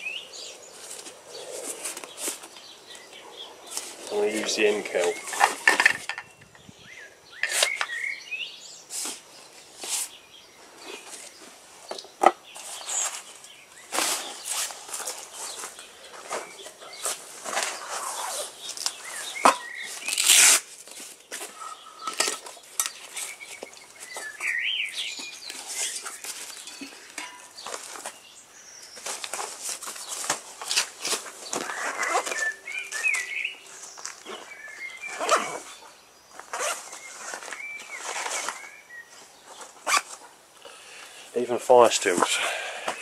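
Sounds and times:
items being taken out: 3.7 - 6.3, 10.8 - 24.6, 25.2 - 28.2, 28.9 - 38.8
canvas bag fabric rustling: 12.5 - 21.6, 28.9 - 40.4
straps being pulled open: 12.6 - 23.4, 29.0 - 33.3, 36.4 - 38.7, 39.6 - 40.3
loud tearing rasp: 20.0 - 20.7.

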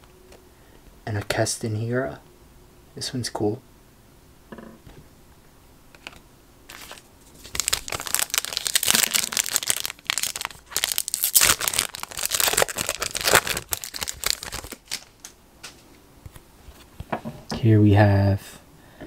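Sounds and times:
foil wrapper tearing and crinkling: 6.7 - 15.3.

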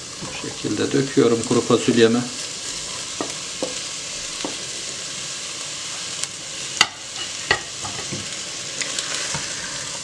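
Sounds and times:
paste sizzling in butter: 0.0 - 10.0.

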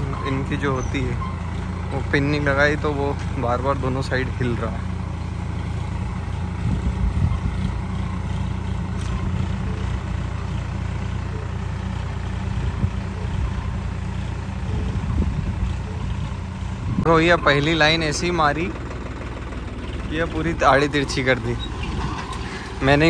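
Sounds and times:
tractor engine running: 0.0 - 23.0.

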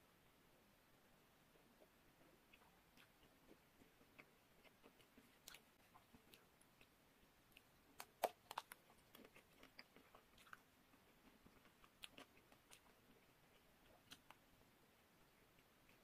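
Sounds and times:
chewing clicks: 7.5 - 14.4.

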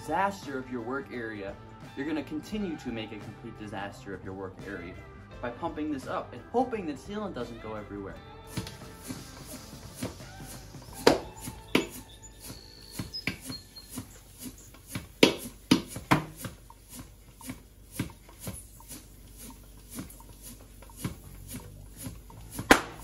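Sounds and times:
faint background music: 0.0 - 16.6
floor pump strokes: 8.5 - 23.0.

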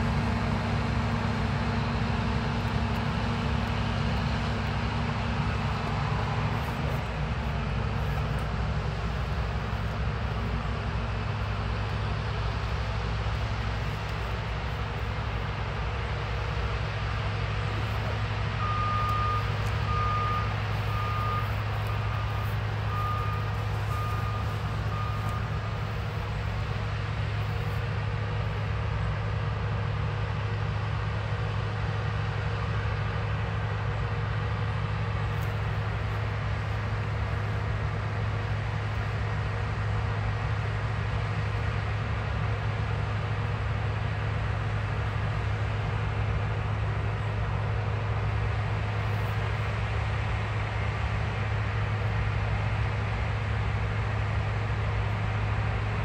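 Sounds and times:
combine harvester droning: 0.0 - 56.0
reversing alarm beeping: 17.7 - 27.2.

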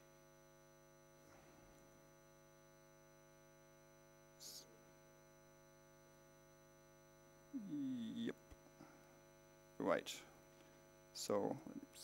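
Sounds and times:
electrical mains hum: 0.0 - 12.0
faint hiss: 4.4 - 4.8.

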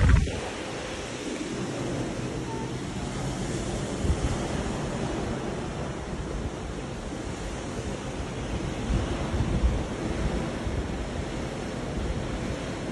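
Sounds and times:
wind on microphone: 0.0 - 2.2, 8.4 - 12.9
sea water rushing along hull: 0.0 - 12.9.

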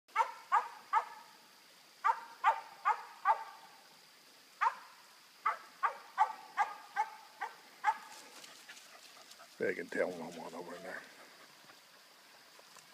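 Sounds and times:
dog barking: 0.2 - 1.2, 2.0 - 3.6, 4.6 - 8.1.

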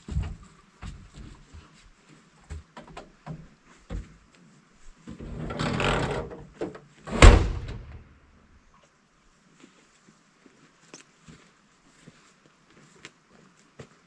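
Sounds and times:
door scraping as it swings: 5.1 - 8.0
door slamming shut: 7.1 - 8.0.

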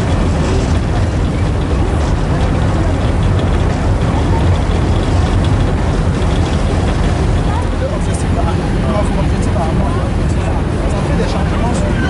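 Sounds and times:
boat engine rumble: 0.0 - 12.0
wind buffeting microphone: 0.0 - 12.0.

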